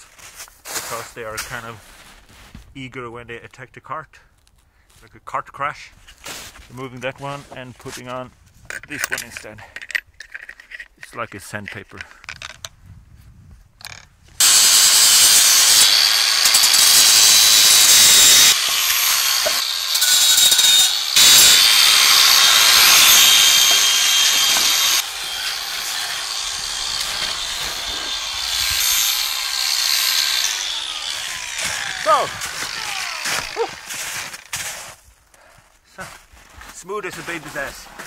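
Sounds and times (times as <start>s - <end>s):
angle grinder grinding wire: 14.4s - 34.5s.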